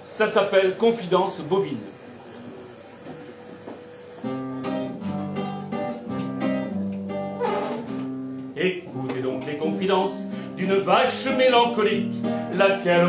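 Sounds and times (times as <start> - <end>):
acoustic guitar strumming: 4.2 - 13.0.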